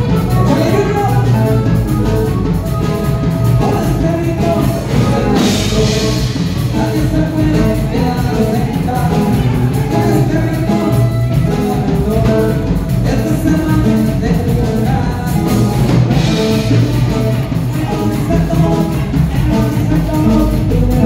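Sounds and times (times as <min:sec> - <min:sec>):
loud dance music with singing: 0:02.9 - 0:21.0.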